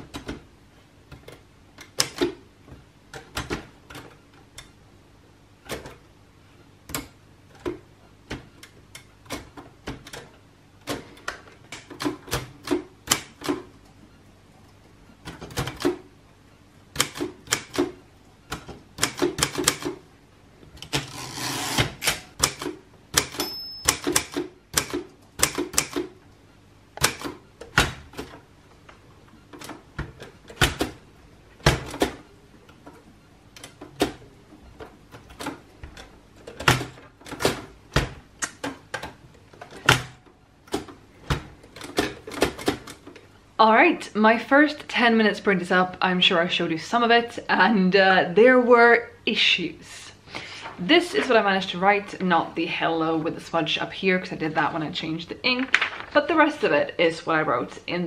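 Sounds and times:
typewriter carriage return slide: 0:20.8 - 0:26.1
typewriter key strikes: 0:22.0 - 0:26.1.

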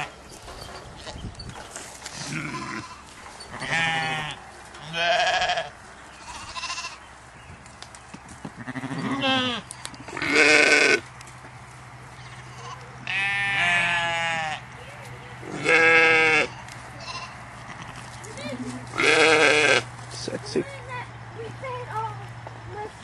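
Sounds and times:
sheep and goats bleating: 0:02.1 - 0:07.1, 0:08.6 - 0:11.1, 0:12.1 - 0:20.0.

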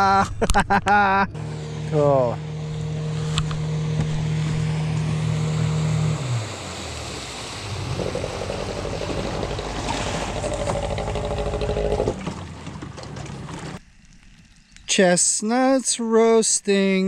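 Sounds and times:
outboard motor running: 0:01.3 - 0:13.8
water churning: 0:03.0 - 0:13.8.

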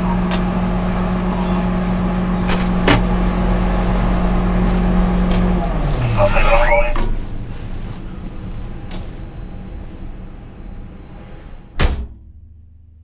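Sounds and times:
tractor engine idling: 0:00.0 - 0:09.2.

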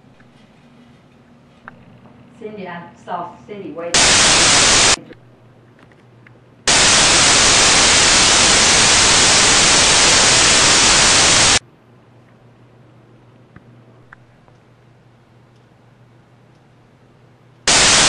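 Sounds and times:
tv static white noise: 0:03.9 - 0:05.0, 0:06.6 - 0:11.6, 0:17.6 - 0:18.0.

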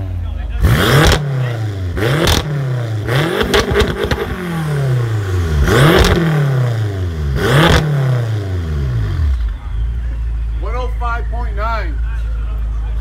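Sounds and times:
car engine revving: 0:00.0 - 0:11.0
exhaust pops and crackles: 0:02.2 - 0:02.5, 0:03.4 - 0:04.4, 0:05.9 - 0:06.2.

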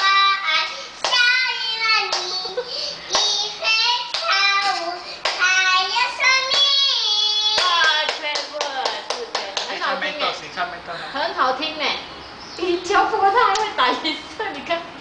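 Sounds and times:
toddler singing: 0:00.0 - 0:08.1.

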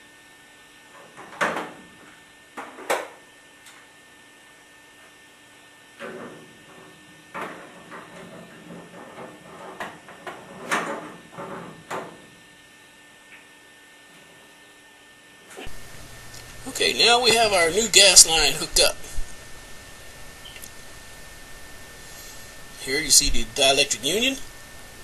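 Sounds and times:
faint steady hum: 0:15.6 - 0:25.0.

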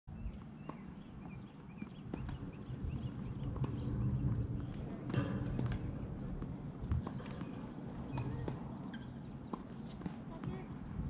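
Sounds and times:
small birds chirping: 0:00.1 - 0:10.9
tennis balls struck and bouncing: 0:00.6 - 0:10.8
steady low rumble: 0:01.2 - 0:09.4.

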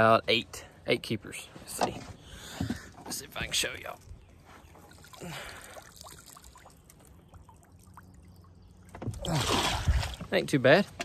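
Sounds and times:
water pouring and dripping: 0:03.3 - 0:10.4
water splash: 0:09.0 - 0:10.3.

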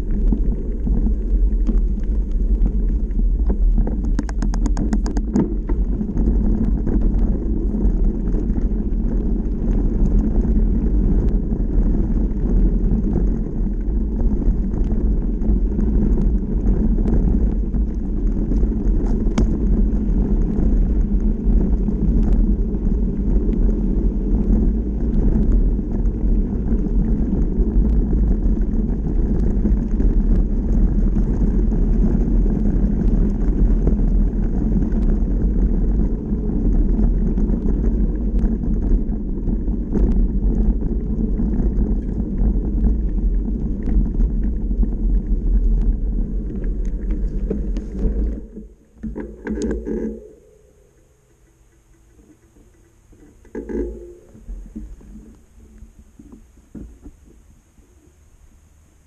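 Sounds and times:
stones ticking and knocking: 0:00.0 - 0:57.5
bike rolling over gravel: 0:00.0 - 0:59.0.

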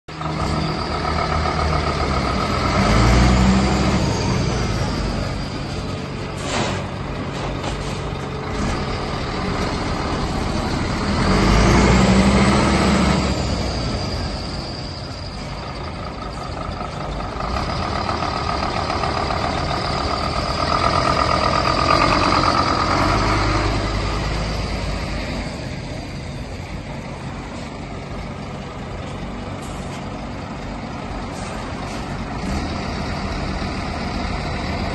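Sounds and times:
diesel lorry engine revving: 0:00.1 - 0:34.9
rising whistle: 0:11.3 - 0:17.0.

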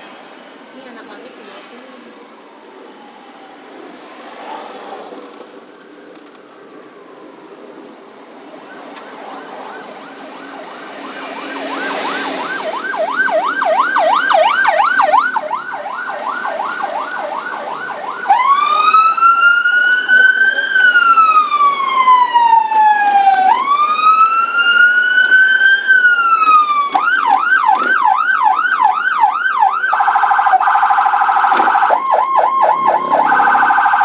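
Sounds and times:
electronic siren yelp and wail: 0:08.6 - 0:34.0
short high siren chirps: 0:11.5 - 0:15.5, 0:31.4 - 0:34.0.

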